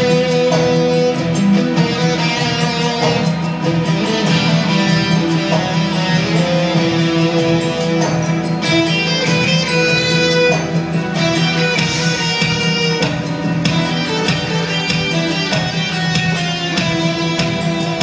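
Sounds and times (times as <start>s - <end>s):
live band playing: 0.0s - 18.0s.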